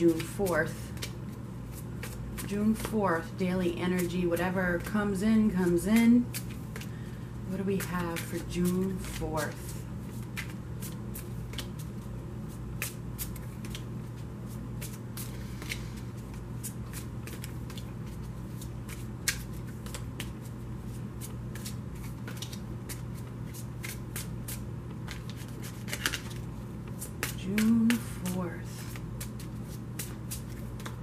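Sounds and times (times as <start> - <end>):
cards being shuffled: 0.0 - 3.3, 3.9 - 31.0.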